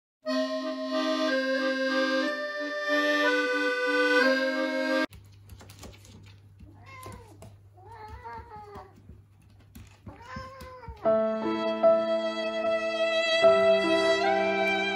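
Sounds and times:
accordion music: 0.2s - 5.1s, 11.1s - 14.9s
cat meowing: 6.7s - 9.0s, 10.0s - 11.2s.

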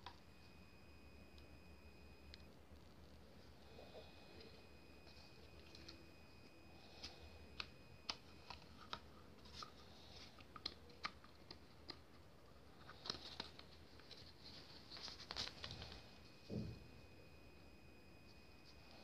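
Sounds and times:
light plastic rustling: 12.6s - 16.2s.

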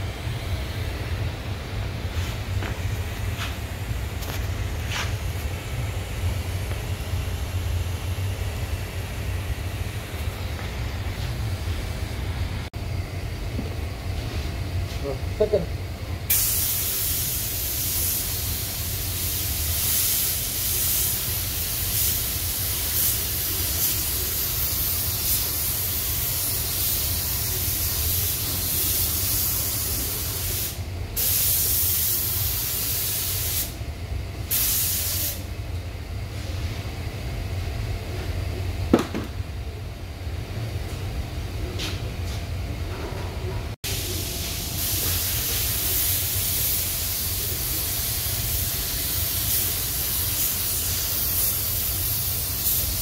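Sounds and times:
spray gun hissing: 16.3s - 33.8s, 34.5s - 35.4s, 43.9s - 53.0s.

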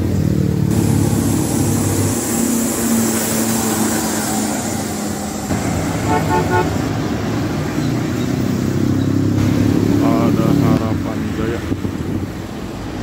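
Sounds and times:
street traffic passing: 0.0s - 13.0s
vehicle horn rapid beeps: 6.0s - 6.8s.

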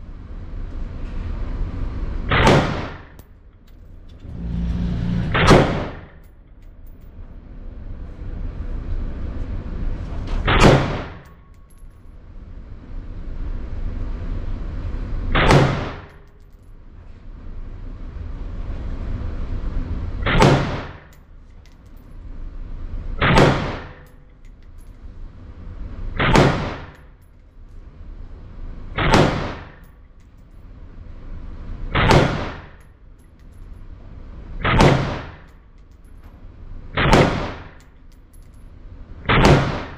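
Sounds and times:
rifle shots: 2.3s - 3.0s, 29.0s - 29.8s, 37.0s - 37.8s, 39.3s - 39.9s.

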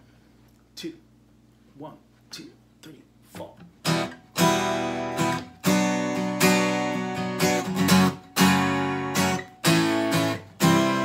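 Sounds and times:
acoustic guitar strumming chords: 3.3s - 11.0s.

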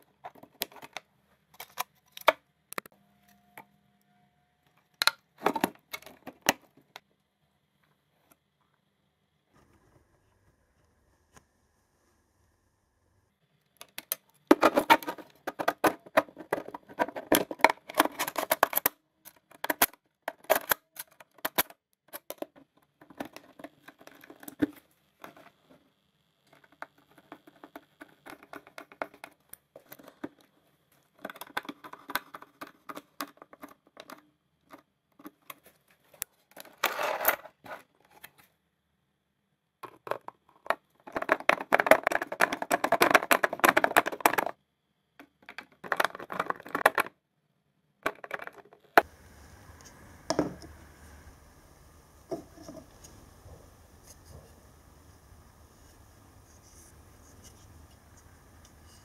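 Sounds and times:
rapid small clicks and taps: 26.4s - 35.6s.

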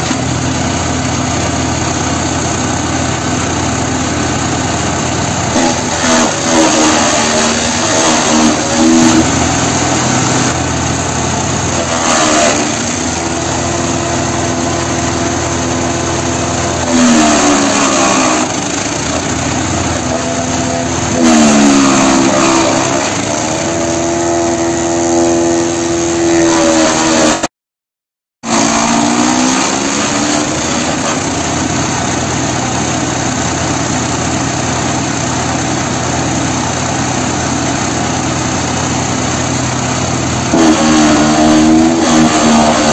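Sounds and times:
shredder petrol engine running: 0.0s - 27.5s, 28.4s - 42.9s
shredder chopping cardboard: 5.5s - 10.6s, 11.3s - 27.5s, 28.4s - 31.8s, 40.5s - 42.9s.

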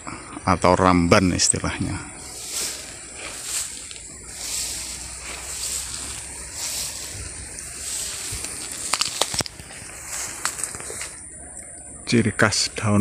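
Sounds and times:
grass rustling against camera: 1.0s - 11.8s
stems and twigs crackling: 1.4s - 13.0s
pulsing high buzz: 1.8s - 11.4s.

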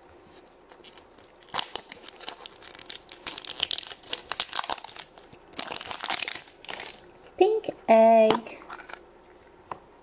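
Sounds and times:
paper wrapper crinkling and tearing: 0.7s - 7.1s.

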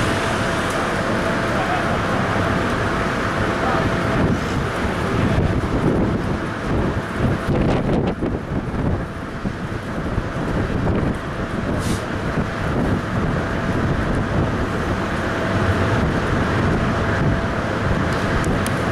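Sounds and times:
train low rumble: 0.0s - 18.9s
wind buffeting microphone: 0.0s - 18.9s.

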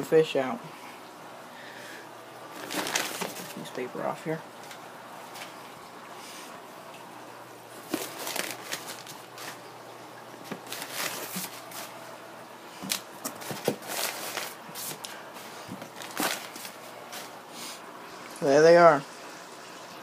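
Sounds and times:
newspaper rustling and crackling: 2.5s - 3.9s, 7.7s - 9.7s, 10.4s - 12.0s, 12.8s - 17.4s.

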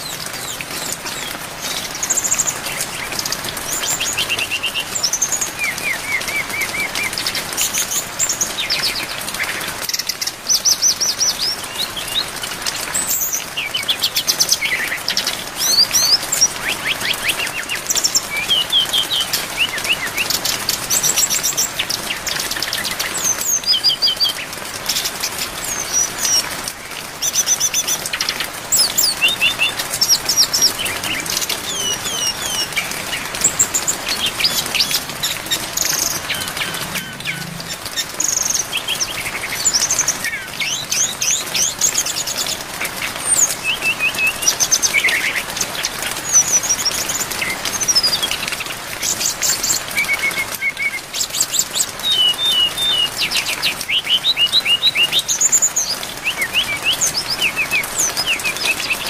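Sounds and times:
bird singing: 0.0s - 59.0s
rain hiss: 0.0s - 59.0s.

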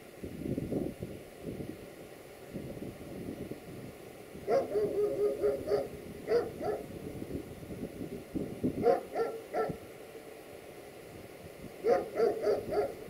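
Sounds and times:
dog barking: 4.5s - 6.9s, 8.8s - 9.8s, 11.8s - 13.0s.

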